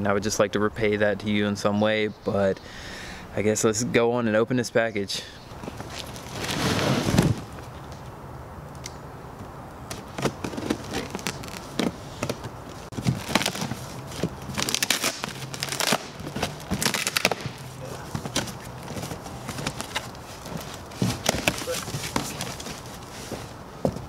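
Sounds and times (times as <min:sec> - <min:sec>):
cardboard crackling and scraping: 0:05.7 - 0:07.6, 0:10.0 - 0:24.0
packing tape tearing: 0:09.9 - 0:23.1
loud rustling: 0:12.7 - 0:23.6.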